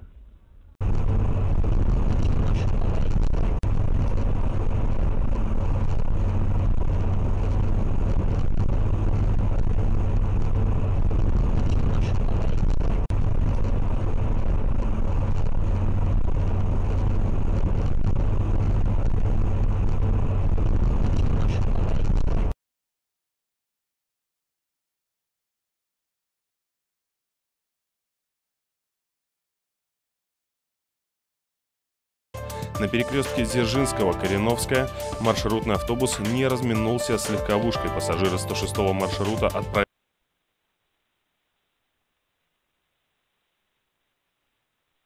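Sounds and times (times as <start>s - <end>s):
car engine and tyres rumbling: 0.0s - 22.5s.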